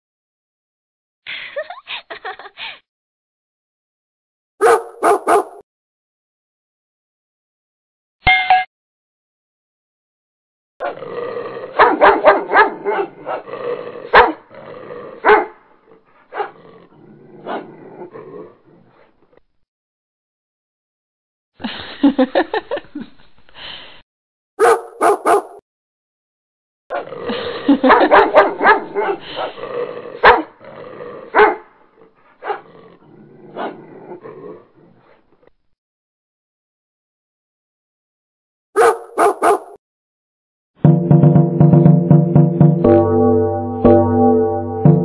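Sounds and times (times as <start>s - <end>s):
dog barking: 4.6s - 5.6s, 11.8s - 13.5s, 14.1s - 14.4s, 15.2s - 15.6s, 16.3s - 16.6s, 24.6s - 25.6s, 27.8s - 29.5s, 30.2s - 30.6s, 31.3s - 31.7s, 32.4s - 32.7s, 38.8s - 39.8s
puppy yipping: 4.6s - 5.6s, 24.6s - 25.6s, 38.8s - 39.8s
dog growling: 10.8s - 19.1s, 26.9s - 27.9s, 28.6s - 35.2s.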